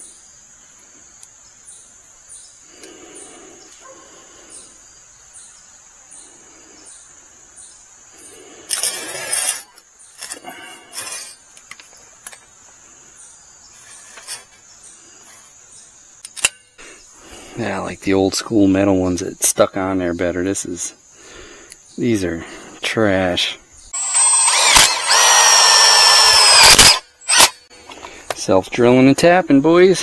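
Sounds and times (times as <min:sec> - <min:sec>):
crickets chirring: 0:00.0 - 0:30.0.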